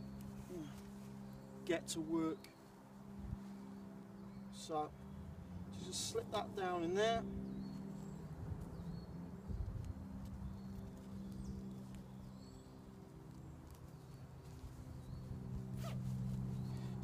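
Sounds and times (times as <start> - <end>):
nylon fabric rustling: 14.2 - 17.0.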